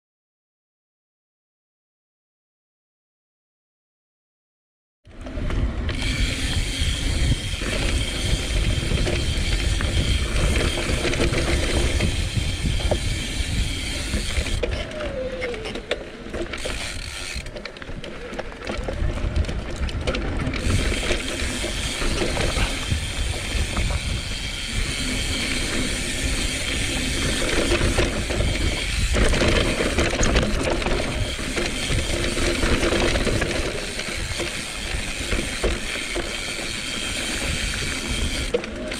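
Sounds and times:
wind rumble on microphone: 0:05.1 - 0:38.9
tyres on dirt: 0:05.2 - 0:38.9
bicycle freehub ratchet buzzing: 0:05.8 - 0:14.8, 0:16.4 - 0:17.5, 0:20.6 - 0:38.9.

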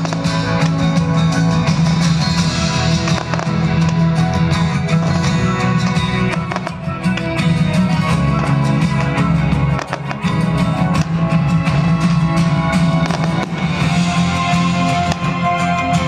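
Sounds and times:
music with guitar and drums: 0:00.0 - 0:16.0
firework bangs: 0:02.6 - 0:07.4, 0:08.4 - 0:11.3, 0:12.8 - 0:15.5.

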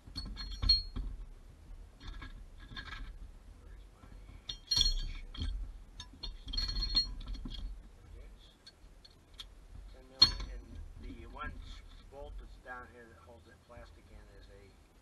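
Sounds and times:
metal tools clinking and rattling: 0:00.0 - 0:01.1, 0:02.0 - 0:03.2, 0:04.2 - 0:07.8, 0:08.6 - 0:12.1.

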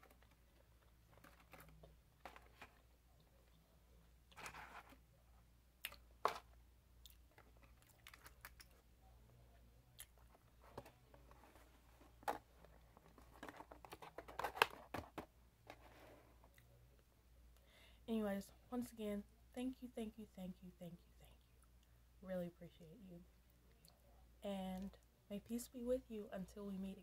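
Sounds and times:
paperboard boxes being handled: 0:04.4 - 0:05.0, 0:10.3 - 0:16.2.

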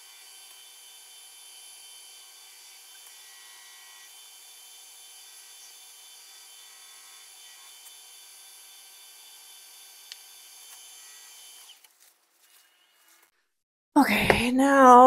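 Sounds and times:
wood lathe motor whine: 0:00.0 - 0:11.9.

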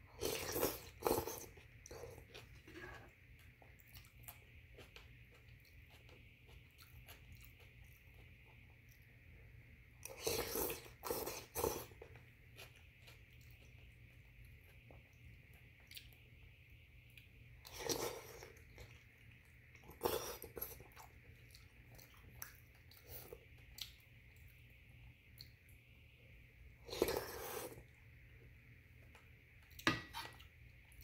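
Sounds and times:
quiet chewing: 0:00.1 - 0:09.2, 0:10.0 - 0:16.4, 0:17.0 - 0:25.9
person slurping noodles: 0:26.9 - 0:27.8.

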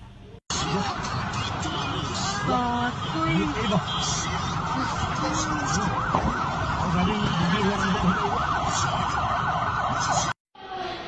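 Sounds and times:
street noise: 0:00.0 - 0:11.0
emergency sirens yelping: 0:00.5 - 0:10.4.

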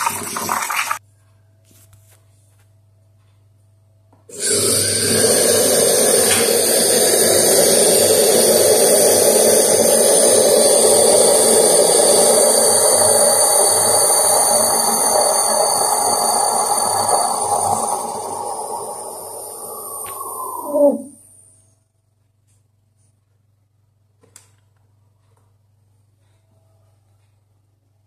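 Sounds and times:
espresso machine steam hissing: 0:04.3 - 0:21.5.

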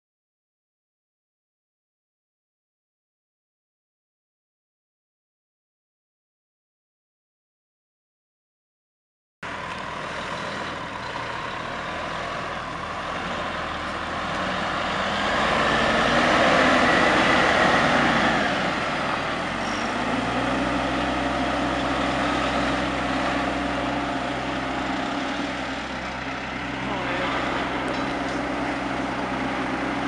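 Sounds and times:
truck diesel engine running: 0:09.4 - 0:30.0.

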